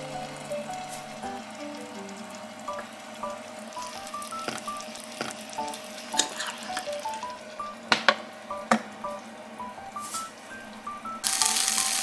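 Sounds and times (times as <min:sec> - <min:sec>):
food sizzling in a pan: 0:00.0 - 0:08.5, 0:09.2 - 0:10.6, 0:11.2 - 0:12.0.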